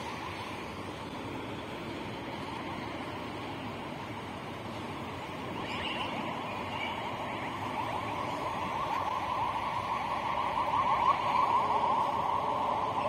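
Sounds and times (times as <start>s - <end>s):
metallic squeal of wheels on rails: 5.2s - 9.1s.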